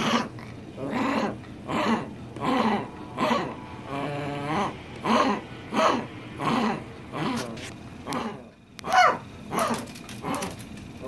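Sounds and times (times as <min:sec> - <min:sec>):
small dog growling: 0:00.0 - 0:10.7.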